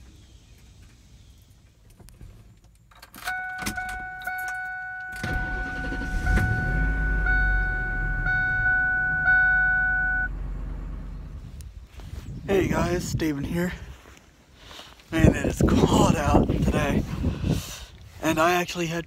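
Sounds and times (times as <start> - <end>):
car engine starting and idling: 0.0 - 11.8
high-pitched tone: 3.3 - 10.4.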